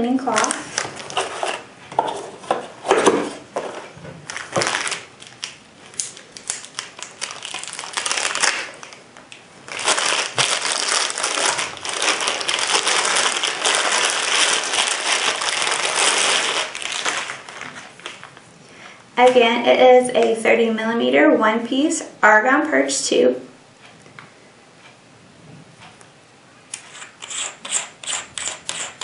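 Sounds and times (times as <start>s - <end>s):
plastic bag crinkling: 0.2s - 1.7s, 4.2s - 9.0s, 9.6s - 18.4s.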